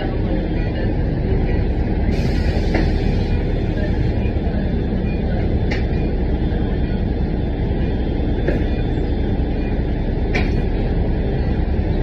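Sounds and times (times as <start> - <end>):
bus rumbling: 0.0 - 12.0.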